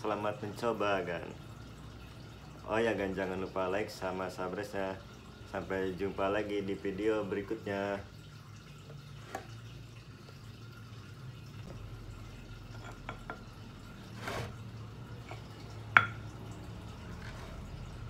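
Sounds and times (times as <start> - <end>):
stone mortar knocking on table: 16.0 - 16.2.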